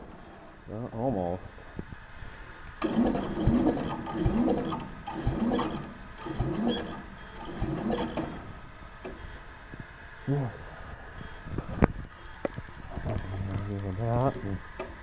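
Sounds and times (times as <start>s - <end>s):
engine cranking by starter: 2.8s - 9.2s.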